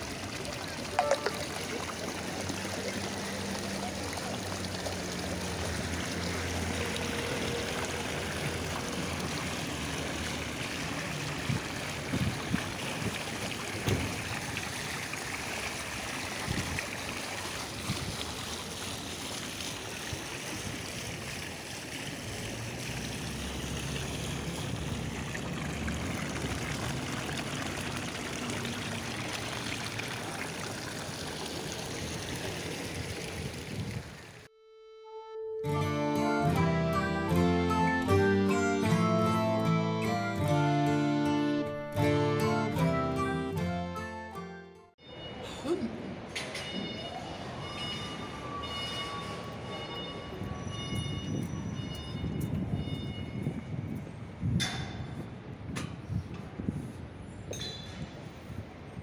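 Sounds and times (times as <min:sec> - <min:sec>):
steady rushing street noise: 0:00.0 - 0:34.5.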